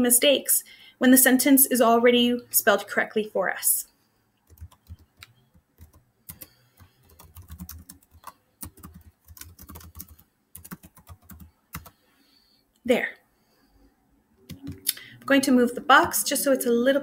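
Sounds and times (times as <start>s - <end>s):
computer keyboard typing: 4.4s - 12.0s, 14.5s - 15.3s.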